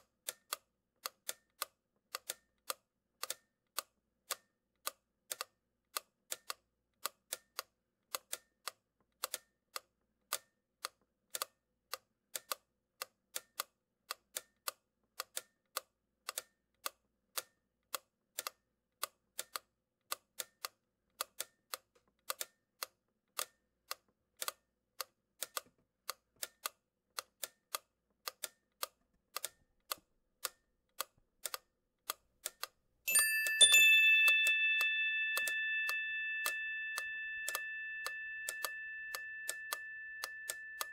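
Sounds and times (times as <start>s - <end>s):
bell ringing: 33.1s - 40.9s.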